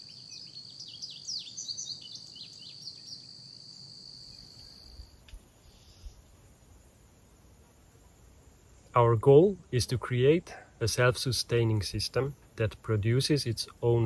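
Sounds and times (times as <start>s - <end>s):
bird chirping: 0.0s - 6.4s
high-pitched insect trill: 0.0s - 10.0s.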